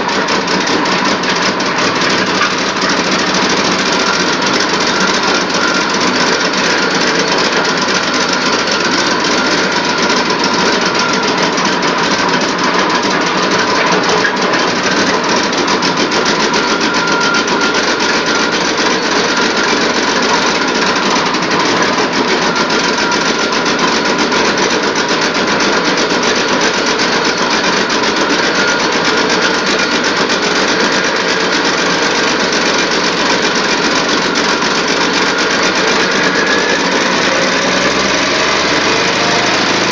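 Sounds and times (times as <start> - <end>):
engine firing pulses: 30.7 - 39.9.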